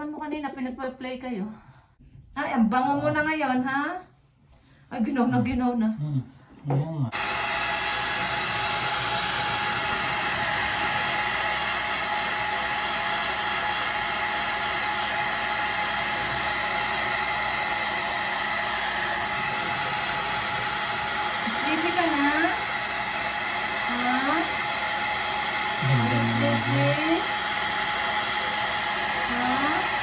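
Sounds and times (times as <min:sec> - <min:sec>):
hair dryer blowing: 0:07.1 - 0:30.0.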